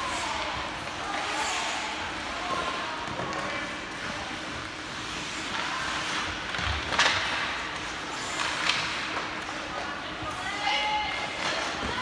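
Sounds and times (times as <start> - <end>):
skating and rink noise: 0.0 - 12.0.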